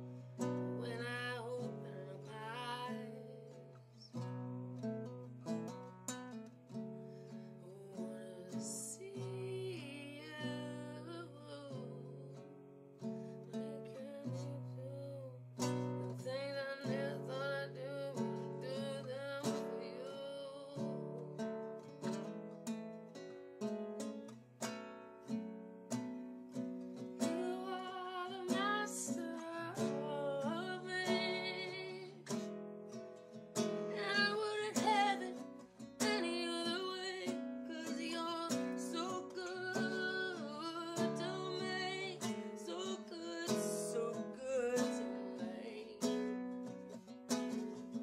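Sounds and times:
woman singing: 0.0 - 4.4, 7.3 - 22.1, 26.5 - 48.0
acoustic guitar strumming: 0.0 - 48.0.

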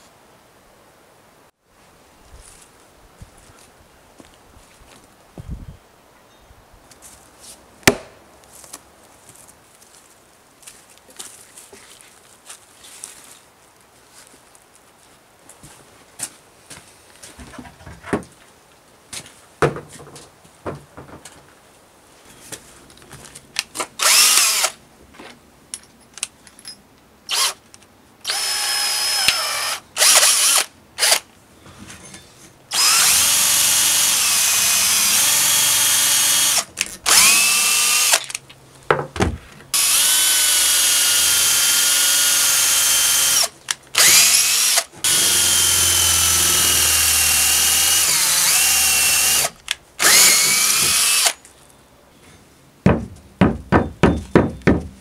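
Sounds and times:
cordless drill whining: 24.0 - 24.7, 27.3 - 27.6, 28.3 - 31.2, 32.7 - 38.2, 39.8 - 51.4.

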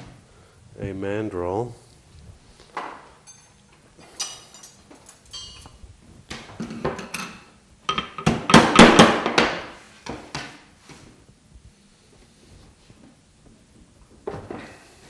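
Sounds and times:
metal mandrel clinking: 3.2 - 5.8.

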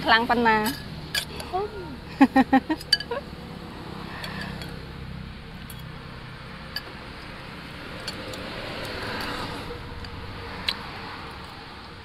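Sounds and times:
steady background noise: 0.0 - 12.0
cutlery clinking on ceramic bowls: 2.8 - 3.2.

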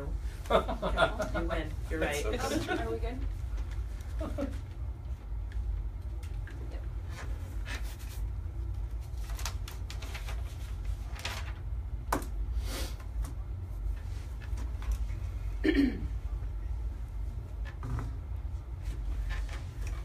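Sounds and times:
steady low hum: 0.0 - 20.0
paper rustling: 7.0 - 11.7.

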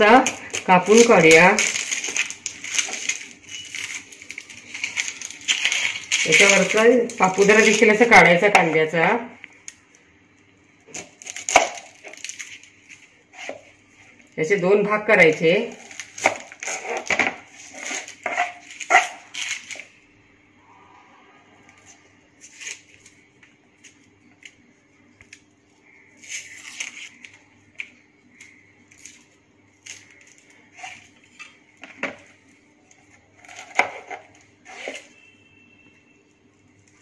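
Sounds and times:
knife scraping onion skin: 0.0 - 8.5, 10.9 - 14.2, 15.2 - 20.0, 25.9 - 27.4, 28.3 - 32.0, 33.3 - 35.3
faint steady hum: 0.0 - 37.0
knife cutting onion on plastic board: 13.3 - 14.1, 15.4 - 19.9, 33.3 - 35.3.

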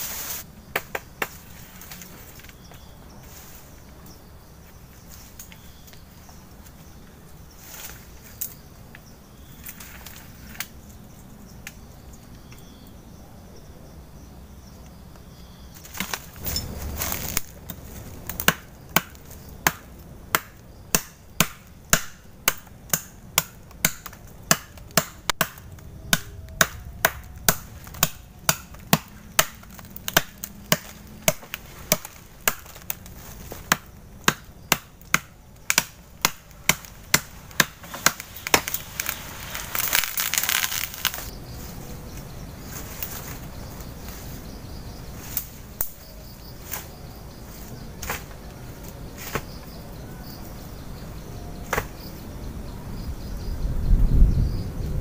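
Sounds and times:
leaves rustling: 0.0 - 12.2, 15.5 - 21.8, 23.2 - 52.6
machete chopping tree trunk: 18.3 - 39.1.

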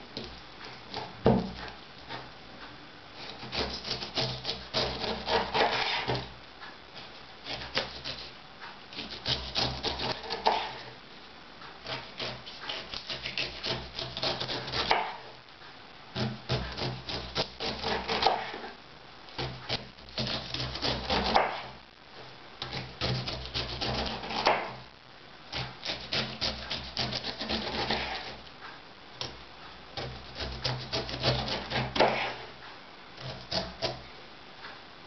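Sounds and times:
knife slicing pineapple rind: 3.2 - 6.3, 7.4 - 8.3, 8.9 - 10.9, 11.8 - 15.3, 16.2 - 18.8, 19.4 - 21.8, 22.6 - 24.8, 25.6 - 28.4, 30.0 - 32.5, 33.2 - 34.0.

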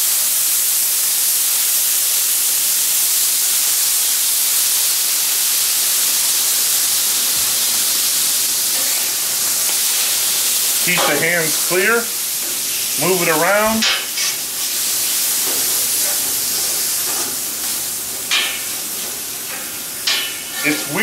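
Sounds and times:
water hissing on hot griddle: 0.0 - 21.0.

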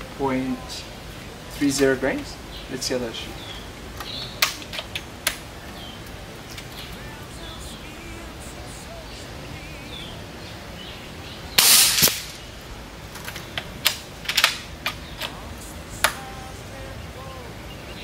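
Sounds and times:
air rifle shot: 11.6 - 12.4.

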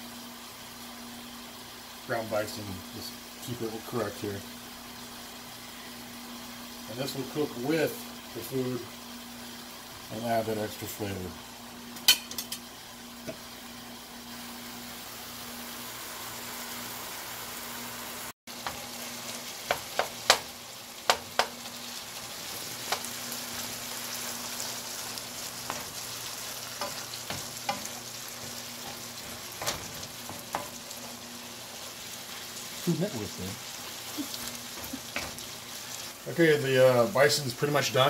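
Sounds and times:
meat sizzling in a frying pan: 0.0 - 38.0
wooden spoon tapping a pan: 19.6 - 21.6, 26.8 - 30.8.

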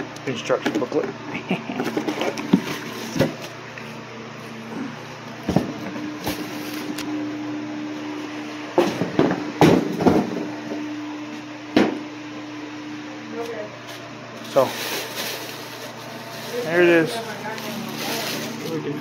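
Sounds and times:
steady low hum: 0.0 - 19.0
plastic wrapping crinkling: 14.4 - 19.0.

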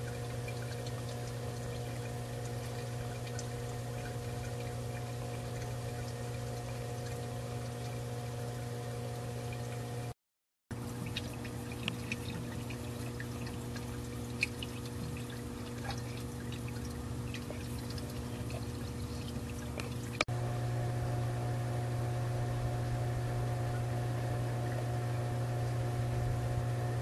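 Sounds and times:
water trickling and dripping: 0.0 - 10.1, 10.7 - 20.3
pool cleaner motor hum: 0.0 - 27.0.

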